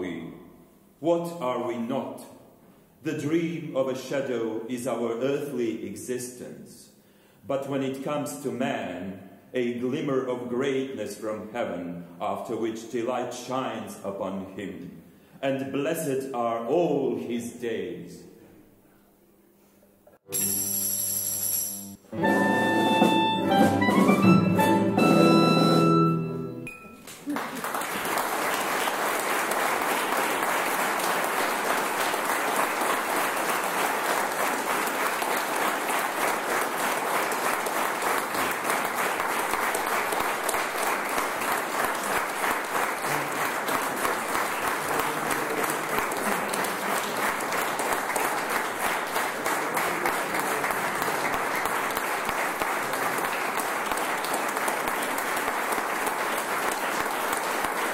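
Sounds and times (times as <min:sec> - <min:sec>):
opera ensemble holding chord: 0:22.1 - 0:26.7
audience applauding: 0:27.0 - 0:57.9.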